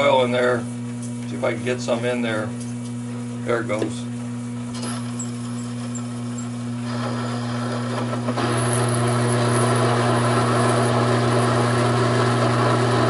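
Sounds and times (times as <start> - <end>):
lathe humming: 4.6 - 13.0.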